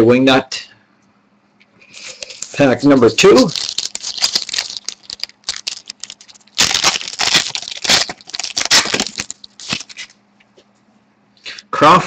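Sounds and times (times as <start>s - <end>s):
wrapper tearing and crinkling: 1.9s - 10.2s.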